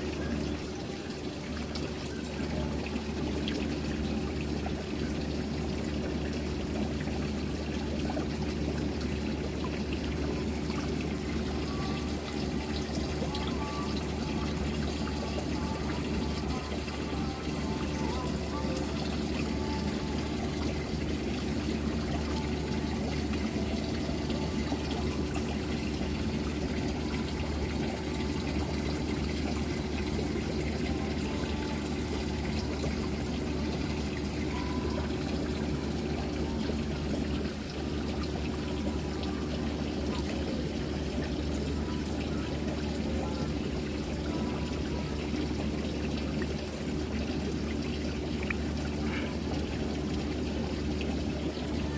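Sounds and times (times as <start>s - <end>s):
water trickling into a pond: 0.0s - 51.9s.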